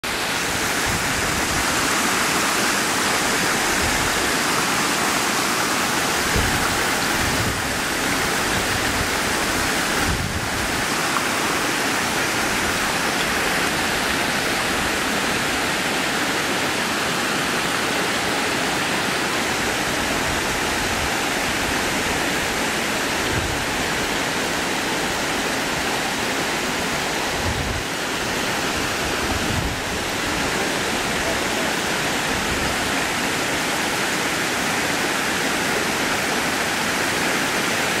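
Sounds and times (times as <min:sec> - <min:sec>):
waterfall rushing: 0:00.0 - 0:38.0
water tumbling over rocks: 0:00.1 - 0:20.0.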